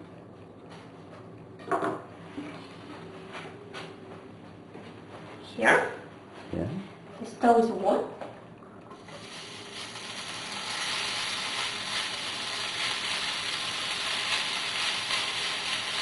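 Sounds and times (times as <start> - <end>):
bacon sizzling in frying pan: 9.0 - 16.0.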